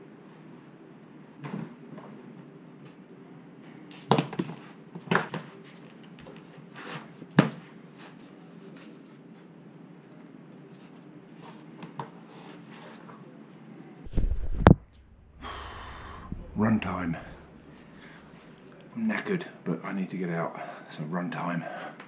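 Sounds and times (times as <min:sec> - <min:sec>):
steady low hum: 0:14.0 - 0:21.8.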